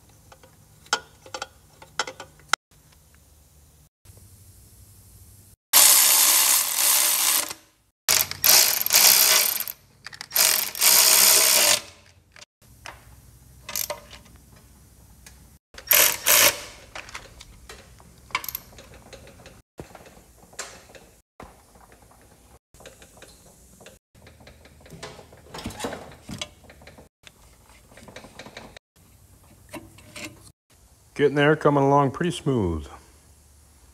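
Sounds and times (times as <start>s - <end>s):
electric ratchet whirring: 5.8s - 12.0s, 15.8s - 16.8s.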